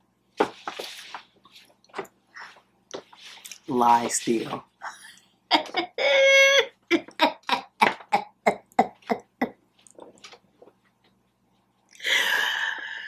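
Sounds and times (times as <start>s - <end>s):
person laughing: 4.8s - 9.6s.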